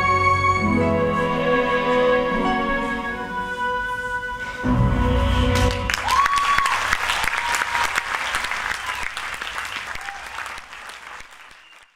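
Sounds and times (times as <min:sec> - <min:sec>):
audience applauding: 0:05.5 - 0:11.9.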